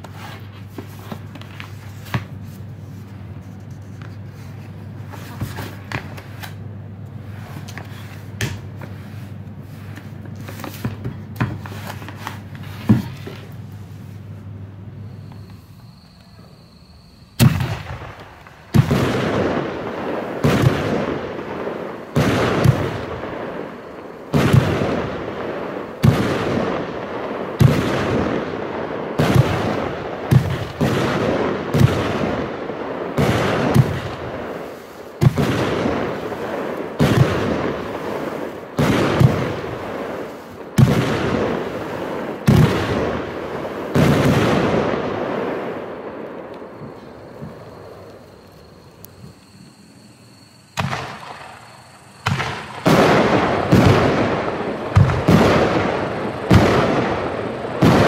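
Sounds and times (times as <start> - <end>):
rush of falling firework stars: 0.0 - 58.0
firework shots banging: 17.4 - 48.4, 50.8 - 58.0.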